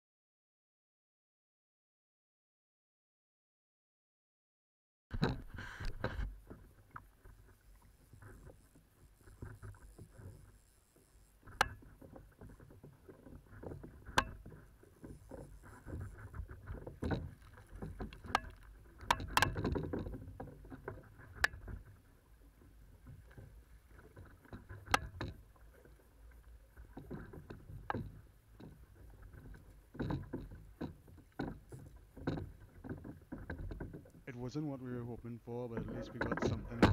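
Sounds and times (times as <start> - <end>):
water splashing against kayak: 5.1 - 36.9
sharp knocks: 36.2 - 36.9.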